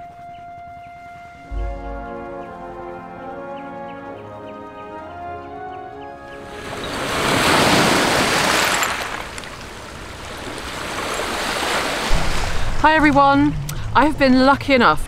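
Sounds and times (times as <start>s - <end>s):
music: 0.0s - 6.9s
small waves washing over stones: 6.8s - 12.8s.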